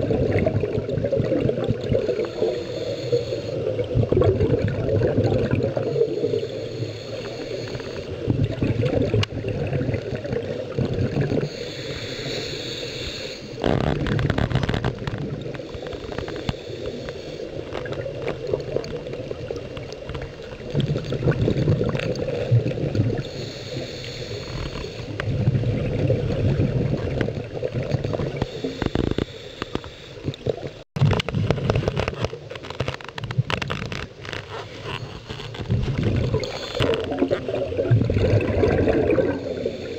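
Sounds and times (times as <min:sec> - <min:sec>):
gurgling exhaust bubbles: 0:00.0 - 0:02.5, 0:03.7 - 0:06.4, 0:08.2 - 0:11.5, 0:20.5 - 0:23.3, 0:25.1 - 0:28.5, 0:35.6 - 0:39.8
regulator inhalation hiss: 0:02.0 - 0:03.7, 0:05.8 - 0:08.2, 0:11.4 - 0:13.6, 0:15.6 - 0:17.7, 0:23.2 - 0:25.2, 0:28.4 - 0:30.2, 0:36.4 - 0:36.8, 0:39.3 - 0:39.9.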